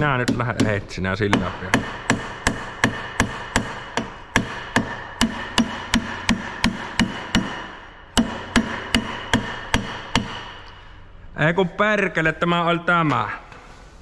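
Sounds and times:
hammer striking metal hub: 0.0s - 10.7s.

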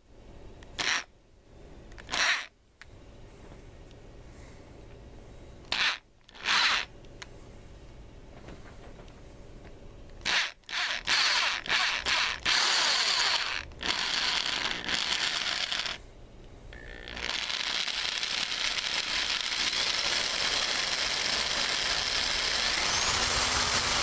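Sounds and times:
electric drill bursts: 10.3s - 16.0s, 16.8s - 24.0s.

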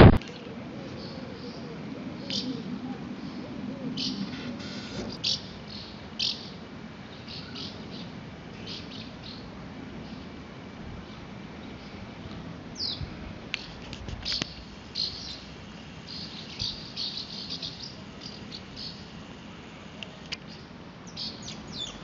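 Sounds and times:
swallows twittering: 16.1s - 19.1s.

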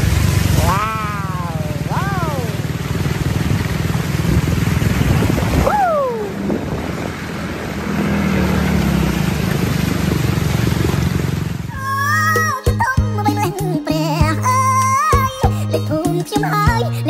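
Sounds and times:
water and wind rushing: 0.0s - 12.3s
engine rumbling: 0.0s - 17.0s.

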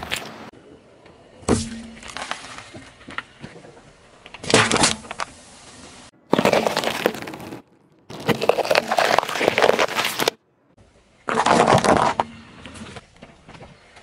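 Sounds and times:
can crunching and crackling: 6.3s - 10.3s.

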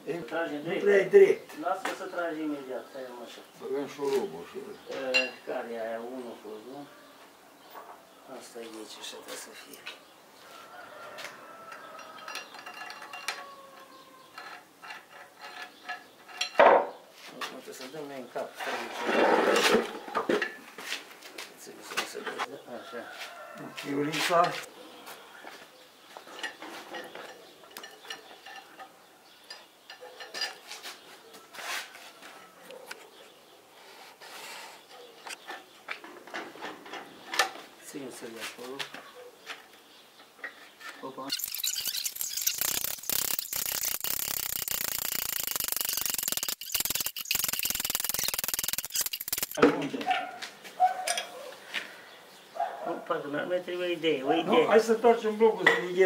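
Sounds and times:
tools clinking on metal: 11.7s - 16.6s, 51.0s - 51.4s
metal scraping with ringing squeal: 41.3s - 49.6s.

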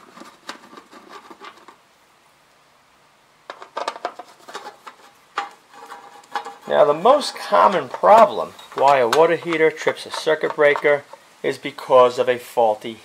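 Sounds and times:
screwdriver clicking and scraping: 3.5s - 11.2s.

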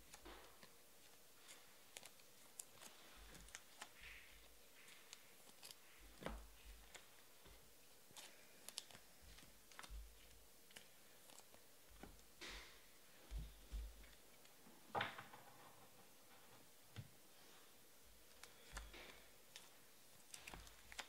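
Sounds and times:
trading cards clicking and rustling: 0.0s - 7.4s, 18.3s - 21.0s.

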